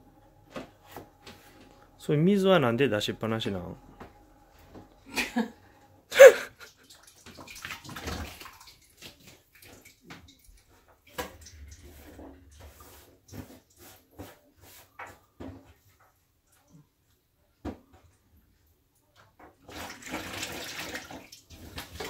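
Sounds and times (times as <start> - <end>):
tap water splashing into sink: 6.6 - 12.9, 19.4 - 22.0.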